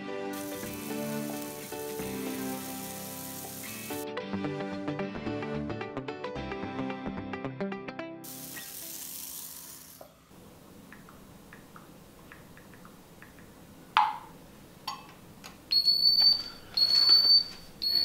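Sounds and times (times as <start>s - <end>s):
soft hiss: 0.4s - 4.0s.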